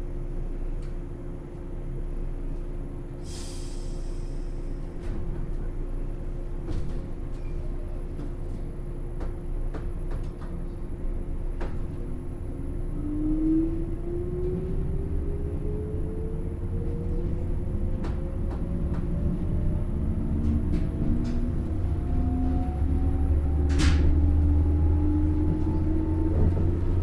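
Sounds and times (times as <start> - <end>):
train hum and rumble: 0.0 - 27.0
air hiss: 3.2 - 4.5.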